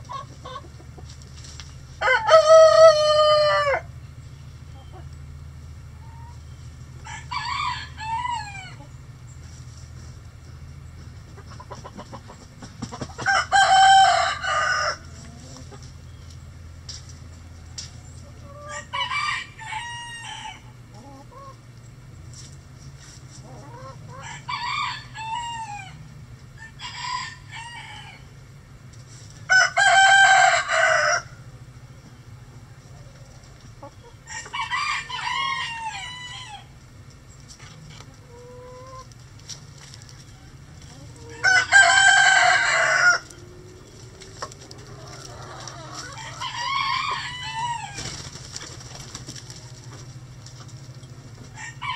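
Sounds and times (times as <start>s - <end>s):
roosters crowing: 1.8s - 9.3s, 11.4s - 16.1s, 17.4s - 21.6s, 23.4s - 28.6s, 29.3s - 37.0s, 40.0s - 51.9s.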